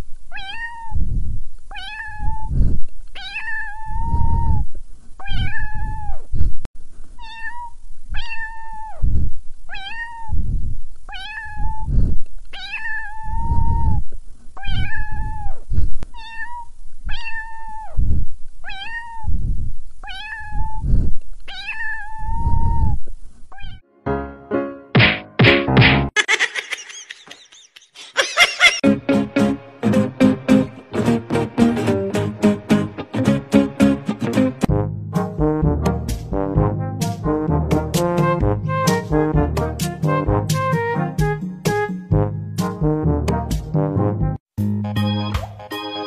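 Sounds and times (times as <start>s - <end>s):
cat meowing: 0.3s - 1.0s, 1.7s - 2.5s, 3.2s - 6.2s, 7.2s - 9.1s, 9.7s - 10.4s, 11.1s - 11.9s, 12.5s - 14.0s, 14.6s - 18.0s, 18.6s - 19.4s, 20.0s - 20.9s, 21.5s - 23.8s.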